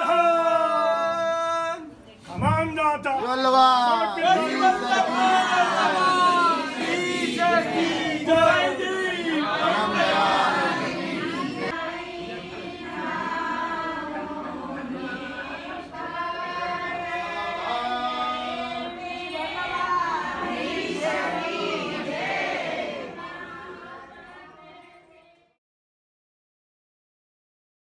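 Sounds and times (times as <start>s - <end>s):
crowd singing together: 4.0s - 25.6s.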